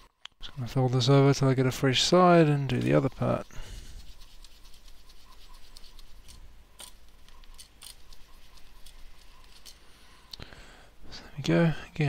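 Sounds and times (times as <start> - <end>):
tissue rubbing on metal plate: 2.7 - 6.4, 7.9 - 9.9.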